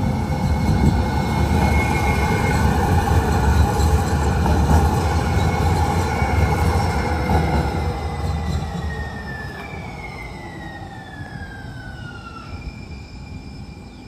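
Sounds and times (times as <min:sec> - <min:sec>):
light-rail train rumble: 0:00.0 - 0:14.0
train motor whine: 0:04.5 - 0:14.0.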